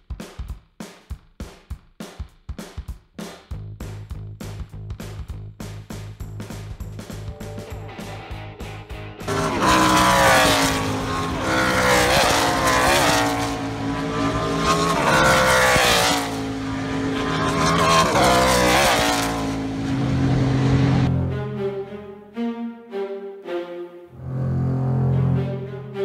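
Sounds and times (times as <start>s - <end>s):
race car engines passing at speed: 7.2s - 21.8s.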